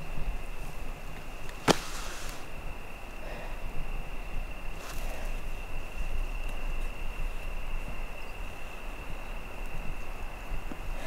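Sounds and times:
brief rustle: 1.4 - 2.5
high-pitched insect trill: 1.7 - 10.6.

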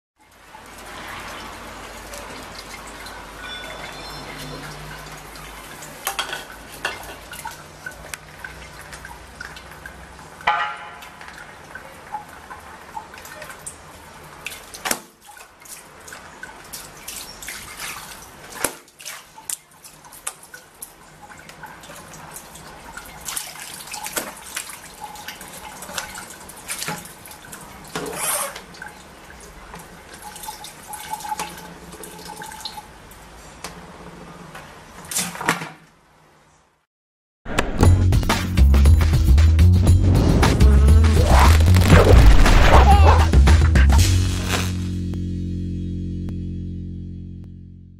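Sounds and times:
water splashing and dripping: 0.2 - 33.8
bowl clattering: 6.1 - 7.5.

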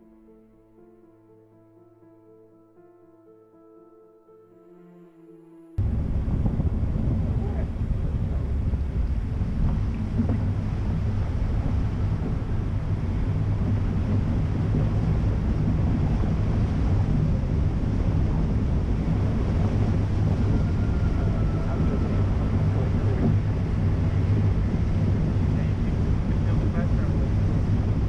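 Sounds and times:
wind buffeting microphone: 5.8 - 28.0
water splashing around wheels: 5.9 - 28.0.

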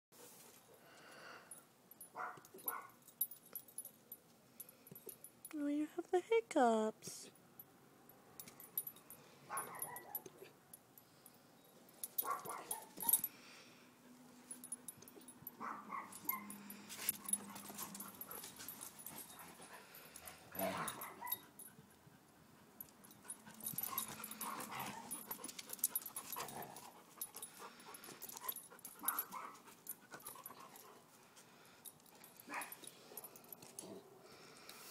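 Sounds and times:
dogs whimpering and yipping: 12.2 - 13.3, 15.2 - 21.6, 23.3 - 30.8.

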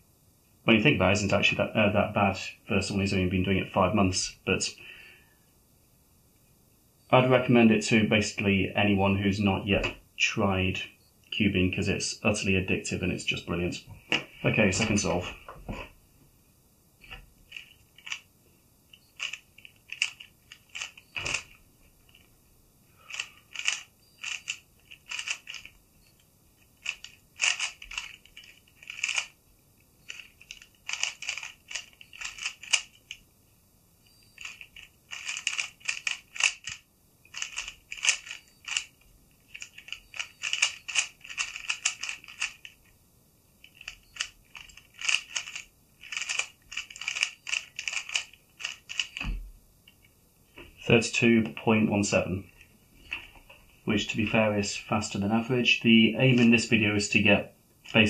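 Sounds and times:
puzzle cube plastic clicking: 17.5 - 18.2, 19.1 - 22.3, 23.1 - 29.4, 30.1 - 33.2, 34.4 - 42.9, 43.6 - 49.2.

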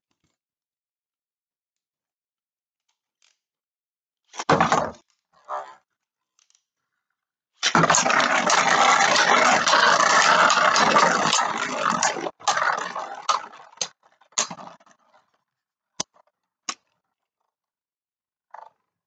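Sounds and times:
spinning tops whirring and scraping: 7.6 - 14.8.

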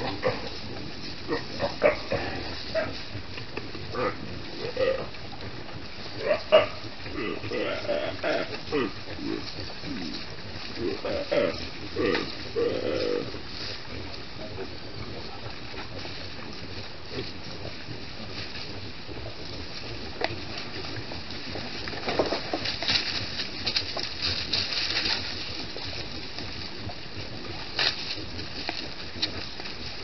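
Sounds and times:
rustling and crunching leaves: 0.0 - 30.0
steady hiss: 0.0 - 30.0
pig-like grunts: 1.3 - 3.0, 3.9 - 5.1, 6.2 - 13.4.

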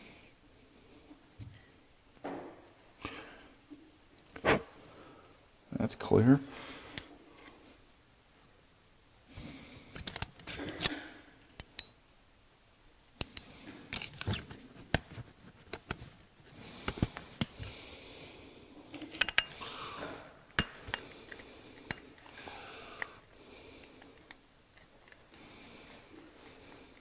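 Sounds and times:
pliers and metal parts clinking: 13.9 - 14.4, 19.0 - 19.6.

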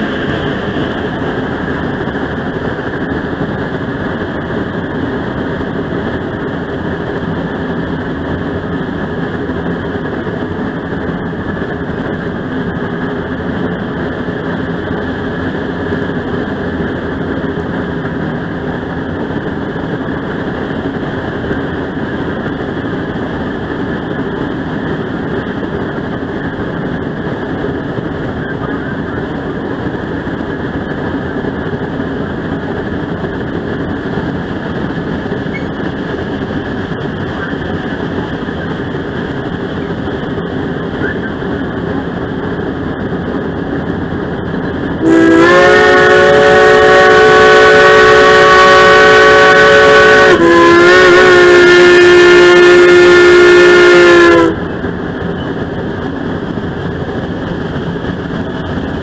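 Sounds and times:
train rumble: 0.0 - 59.0
steam locomotive whistle: 45.0 - 54.6.

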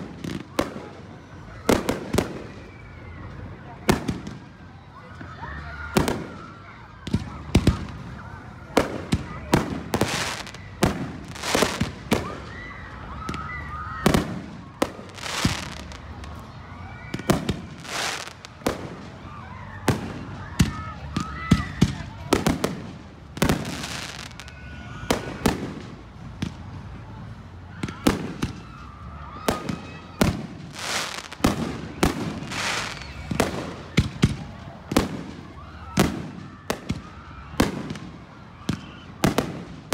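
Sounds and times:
fireworks bursting with bangs: 0.0 - 2.9, 3.7 - 4.7, 5.9 - 12.6, 13.2 - 16.4, 17.0 - 27.2, 27.8 - 39.9
fireworks hiss: 30.2 - 34.4.

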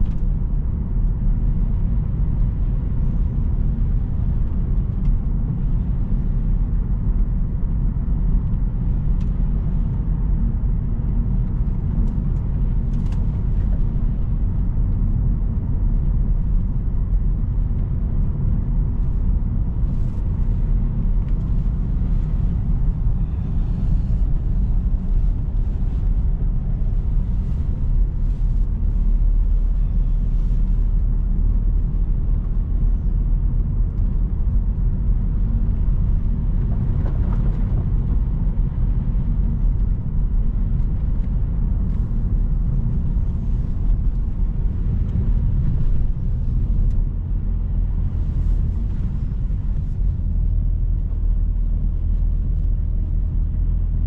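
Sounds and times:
engine and tyre rumble: 0.0 - 54.0.

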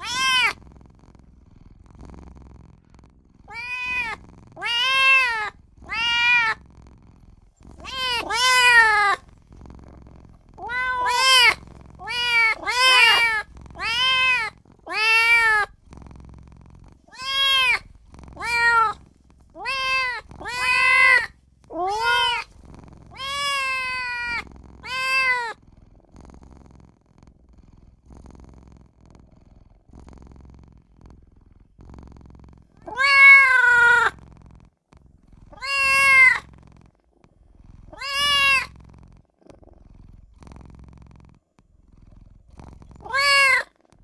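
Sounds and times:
kitten meowing: 0.0 - 0.6, 3.5 - 6.6, 7.8 - 9.2, 10.6 - 15.7, 17.1 - 19.0, 19.6 - 22.5, 23.1 - 25.6, 32.8 - 34.2, 35.5 - 36.5, 37.9 - 38.8, 43.0 - 43.7.

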